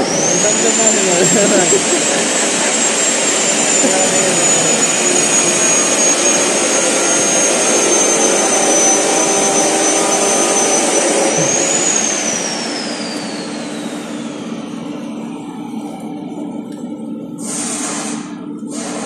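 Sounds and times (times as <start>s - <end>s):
machine rushing with high whine: 0.0s - 19.0s.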